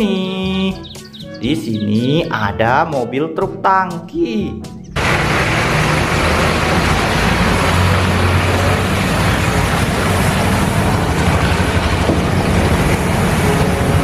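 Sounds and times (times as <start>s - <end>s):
heavy truck engine running: 4.9s - 14.0s
road traffic noise: 4.9s - 14.0s.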